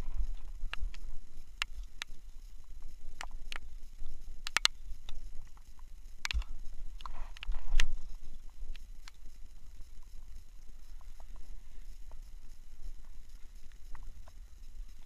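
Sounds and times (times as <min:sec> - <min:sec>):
fishing reel clicks: 0:03.1 - 0:09.4.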